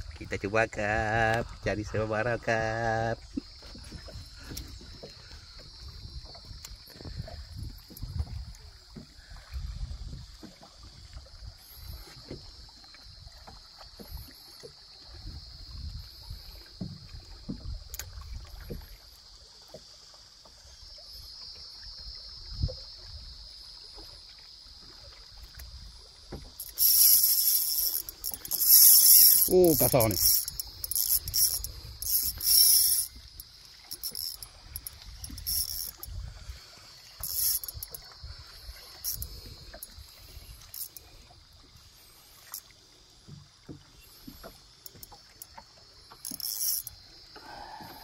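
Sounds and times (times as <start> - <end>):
water slapping boat: 0.0 - 48.0
fishing reel drag buzzing: 0.2 - 9.6, 11.4 - 19.2, 25.3 - 43.1, 43.8 - 48.0
steady high hiss: 26.6 - 37.9.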